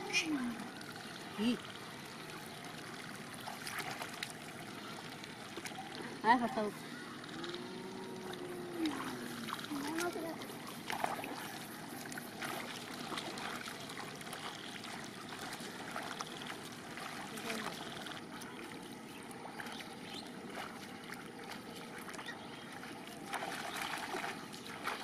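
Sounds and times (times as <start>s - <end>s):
feet wading through water and mud: 0.0s - 25.0s
water trickling: 0.0s - 25.0s.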